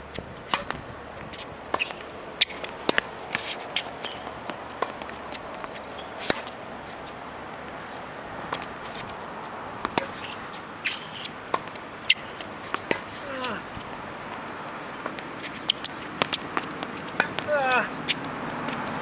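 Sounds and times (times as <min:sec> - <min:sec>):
racket hitting tennis ball: 0:00.1 - 0:07.2, 0:08.0 - 0:19.0
tennis ball bouncing: 0:00.1 - 0:07.2, 0:07.8 - 0:19.0
sneakers scuffing on court: 0:00.1 - 0:19.0.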